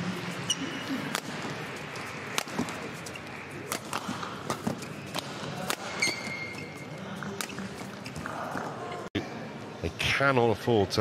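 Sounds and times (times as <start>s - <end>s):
shoe squeak on court: 0.4s - 1.1s, 5.9s - 8.2s
racket hitting shuttlecock: 0.5s - 8.2s.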